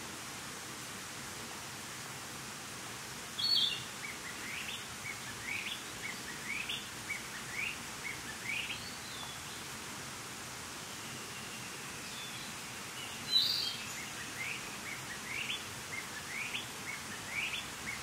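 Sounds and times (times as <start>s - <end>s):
bird singing: 3.4s - 9.5s, 11.0s - 18.0s.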